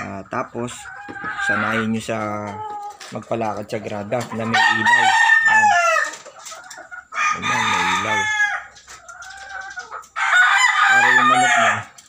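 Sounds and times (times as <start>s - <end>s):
roosters crowing: 4.2s - 6.2s, 6.9s - 12.0s.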